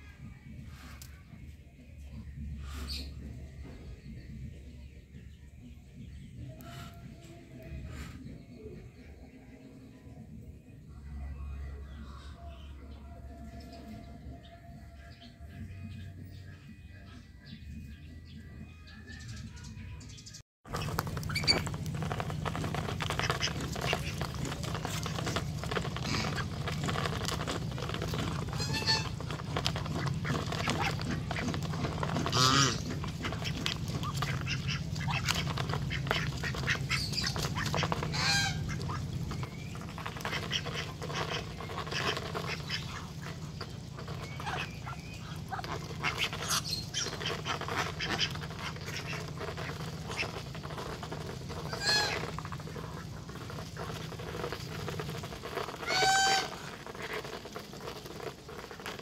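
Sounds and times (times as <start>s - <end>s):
ducks and geese calling: 2.2s - 4.6s, 6.4s - 9.2s, 20.7s - 59.0s.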